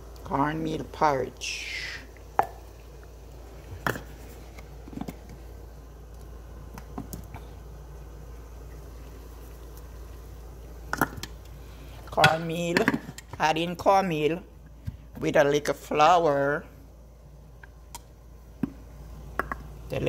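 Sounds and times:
steady low hum: 0:00.0 - 0:20.0
plastic cup clicking against bowl: 0:19.4 - 0:19.7.

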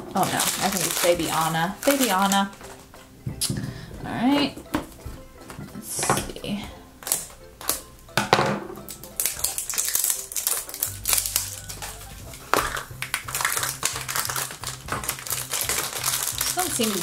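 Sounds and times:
foil bag crinkling: 0:00.0 - 0:03.1, 0:08.9 - 0:17.0
plastic capsule clicking open: 0:07.0 - 0:07.9.

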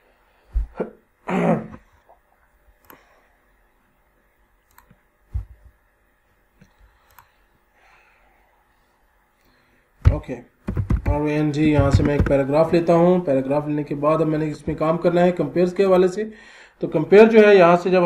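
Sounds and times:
computer mouse clicks: 0:02.8 - 0:03.0, 0:04.7 - 0:05.0, 0:06.6 - 0:07.4, 0:10.7 - 0:12.4
low thumps on desk: 0:10.0 - 0:12.4.

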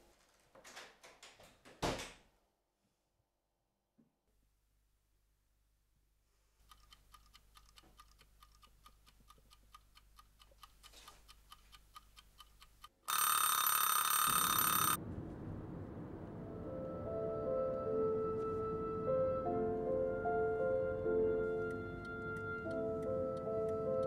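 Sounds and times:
mechanical timer ticking: 0:06.6 - 0:15.0
timer bell ringing: 0:13.1 - 0:15.0
low steady rumble: 0:15.0 - 0:19.9.

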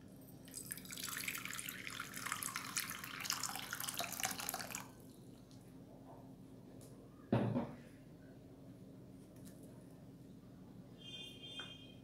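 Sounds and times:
water pouring into a bowl: 0:00.4 - 0:05.2.

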